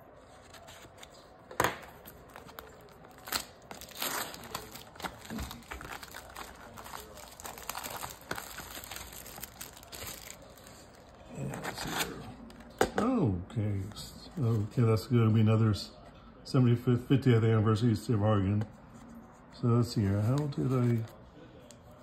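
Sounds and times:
wrapper crackling and tearing: 2.2 - 11.1.

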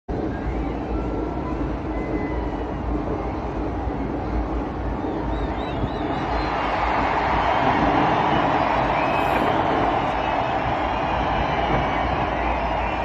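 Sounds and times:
city noise low rumble: 0.1 - 13.0
faint wavering whistle: 1.9 - 4.0, 4.9 - 6.5.

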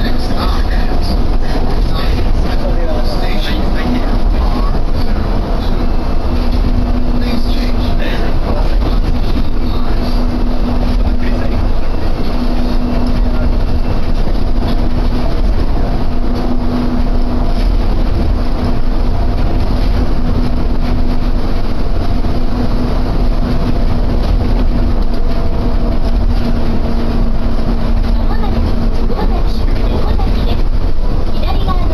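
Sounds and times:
constant hum: 0.0 - 31.9
rubber tyres rumbling: 0.0 - 31.9.

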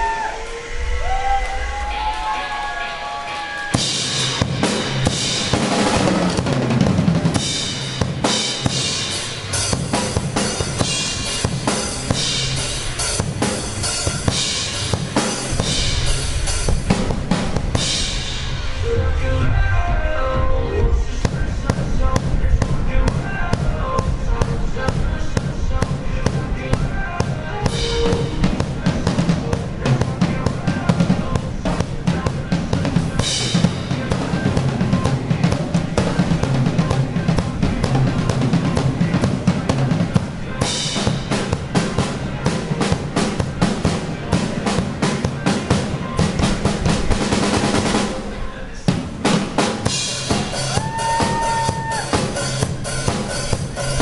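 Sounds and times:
cymbal crashes: 0.0 - 19.0
bass drum and snare groove: 3.7 - 18.7, 21.2 - 48.1, 48.9 - 54.0.

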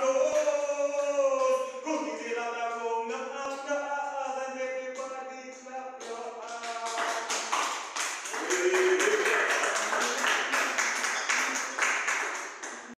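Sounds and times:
congregation clapping: 6.0 - 13.0.

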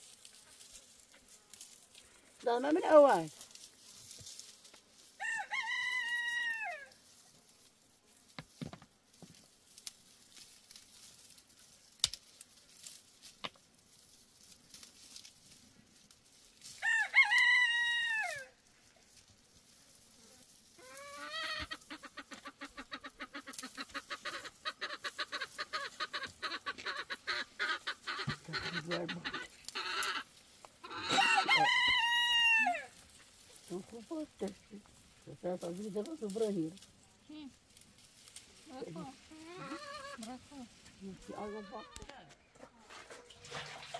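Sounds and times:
rooster crowing: 5.2 - 7.0, 16.8 - 18.6, 30.8 - 33.0
fast clucking: 21.4 - 30.2.

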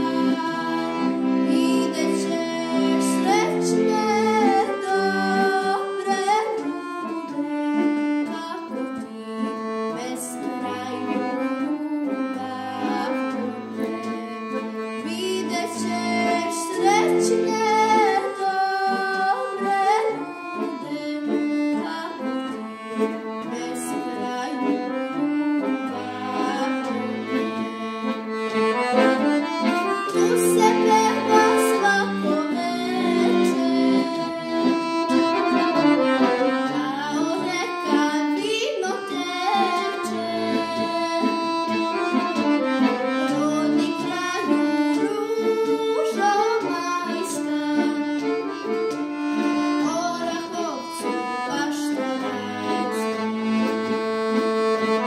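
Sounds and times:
girl singing folk song: 0.0 - 55.0
instrumental accompaniment: 0.0 - 55.0.

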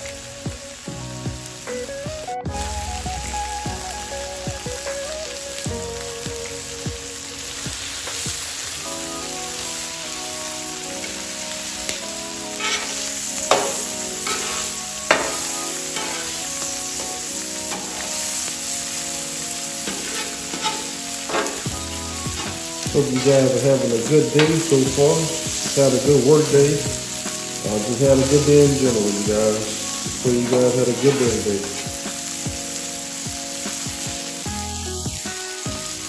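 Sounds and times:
meat sizzling on griddle: 0.0 - 36.0
metal spatula scraping griddle: 12.5 - 29.8, 30.4 - 31.9.

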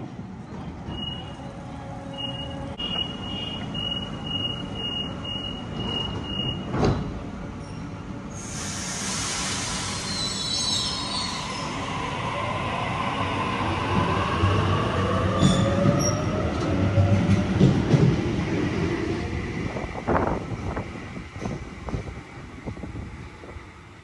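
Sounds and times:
loud hiss of air: 8.4 - 11.8.

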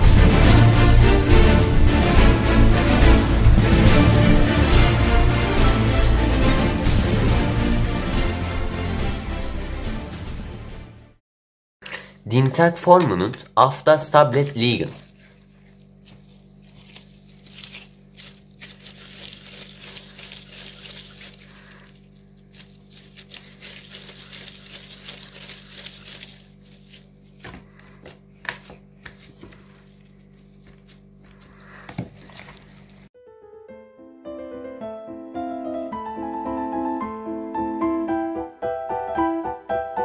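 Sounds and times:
plastic gloves crinkling: 11.8 - 33.1.

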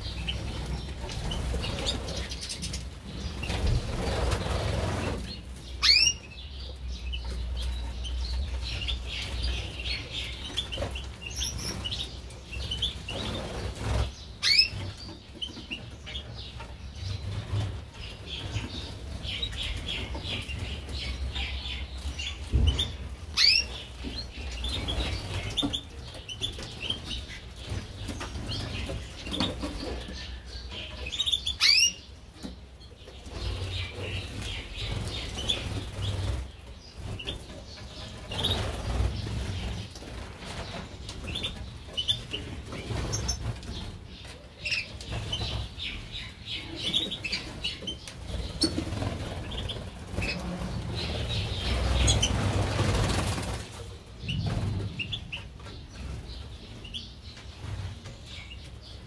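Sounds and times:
birds chirping and twittering: 0.0 - 59.0
wings fluttering: 47.0 - 56.3.

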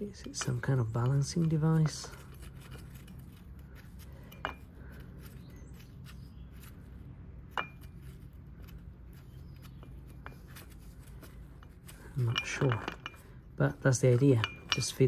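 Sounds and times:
steady low hum: 0.0 - 15.0
sharp metallic clinks: 11.6 - 15.0.

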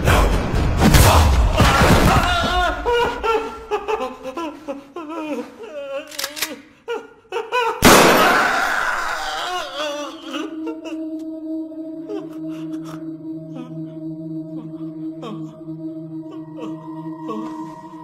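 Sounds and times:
man groaning in pain: 8.5 - 11.0.

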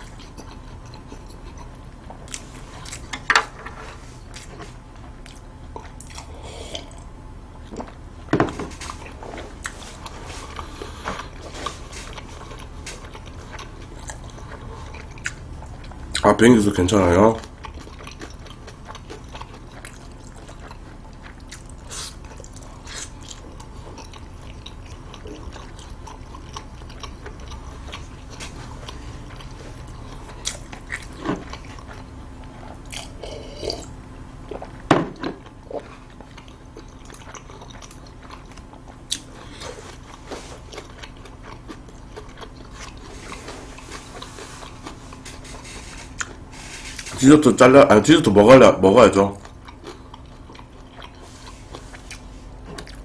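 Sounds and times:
man chewing and mouth clicks: 0.0 - 3.2, 4.2 - 8.0, 8.7 - 16.4, 17.4 - 47.2, 49.3 - 53.0.

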